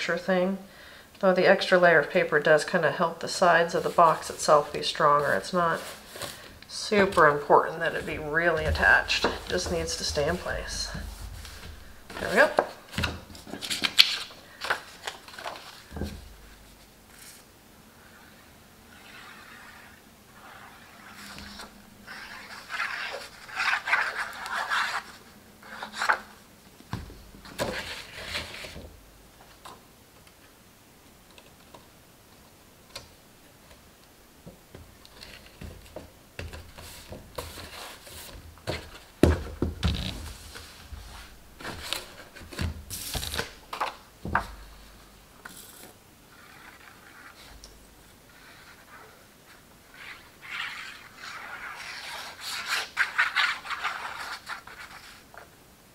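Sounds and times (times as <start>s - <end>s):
paper rustling and scraping: 3.7s - 17.4s, 18.0s - 26.4s, 27.4s - 28.8s, 35.2s - 39.1s, 39.8s - 44.6s, 45.5s - 47.6s, 48.3s - 55.5s.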